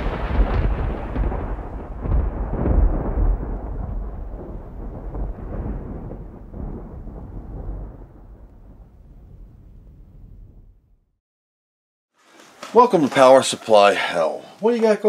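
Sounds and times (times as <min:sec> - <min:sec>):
deep crackling rumble: 0:00.0 - 0:11.2.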